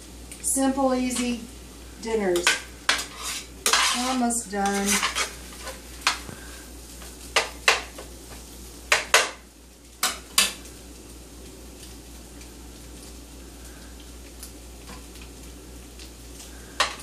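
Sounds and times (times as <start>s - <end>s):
food sizzling: 0.0s - 17.0s
spatula scraping frying pan: 2.1s - 6.6s.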